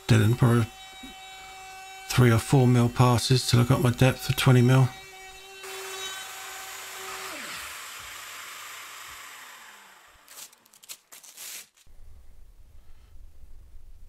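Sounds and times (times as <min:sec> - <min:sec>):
router motor spinning down: 0:00.0 - 0:10.7
router whining and cutting wood: 0:00.0 - 0:10.8
masking tape peeled off: 0:10.2 - 0:11.9.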